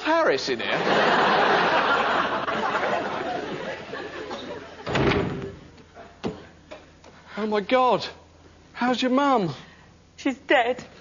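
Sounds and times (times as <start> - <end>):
studio audience laughing: 0.6 - 4.9.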